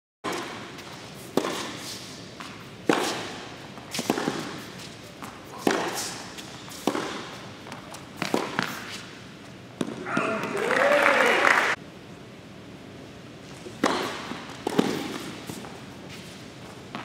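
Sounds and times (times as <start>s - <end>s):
tennis ball struck with rackets: 0.3s - 9.0s, 13.8s - 15.7s
tennis ball bouncing: 0.3s - 10.6s, 13.7s - 17.0s.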